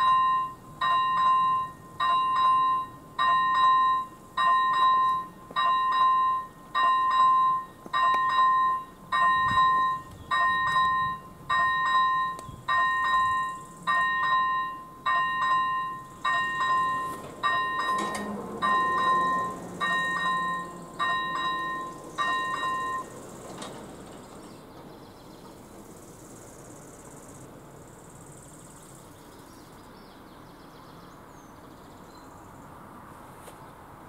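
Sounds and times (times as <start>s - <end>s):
level-crossing warning bell dinging: 0.0s - 26.0s
low hum of barrier drives: 0.0s - 34.0s.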